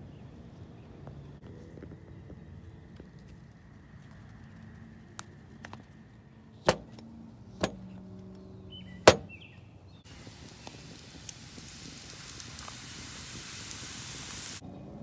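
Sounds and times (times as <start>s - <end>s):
sharp knocks: 6.7s - 7.0s, 7.6s - 7.9s, 9.1s - 9.4s.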